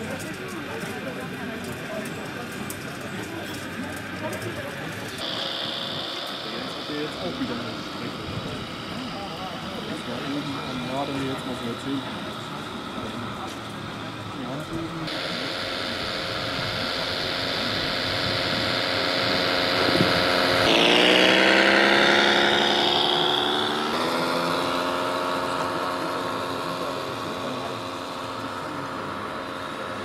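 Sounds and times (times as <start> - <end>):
simulated diesel truck engine: 0.0 - 30.0.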